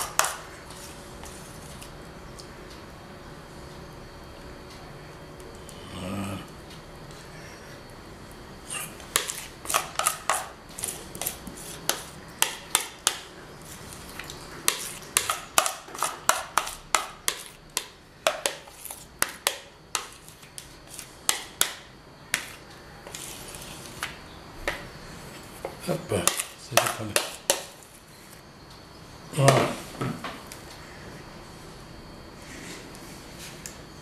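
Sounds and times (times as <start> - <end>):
metal spoon scraping a mixing bowl: 8.8 - 12.9.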